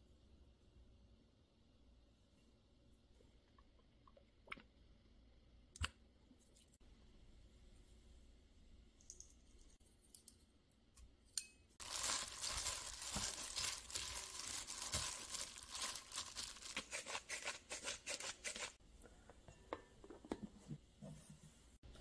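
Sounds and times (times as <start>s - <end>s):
plastic glove crinkling: 11.8s - 18.8s.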